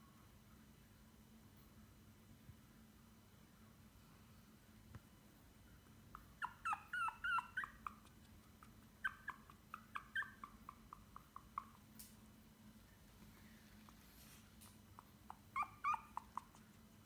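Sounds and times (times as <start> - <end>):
puppy whimpering: 6.1 - 11.8, 15.0 - 16.8
puppy yips: 6.1 - 11.8, 15.2 - 16.7.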